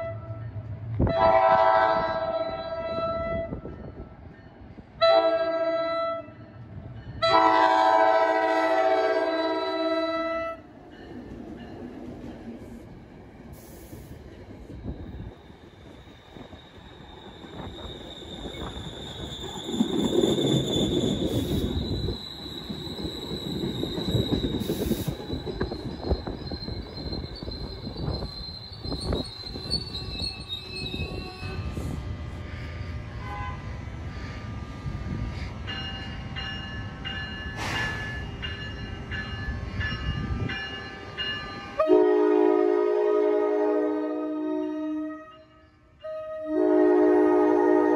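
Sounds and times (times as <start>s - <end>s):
train horn: 0.0s - 0.4s, 1.0s - 3.7s, 5.0s - 6.4s, 7.2s - 10.7s, 31.0s - 34.6s, 41.8s - 47.9s
train coaches rumbling and clicking: 0.0s - 44.5s
high steady brake squeal: 13.6s - 33.4s.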